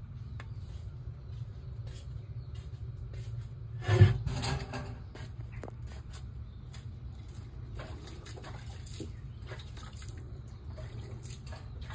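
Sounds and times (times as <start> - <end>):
steady low hum: 0.0 - 11.9
water splashing and dripping: 6.8 - 11.9.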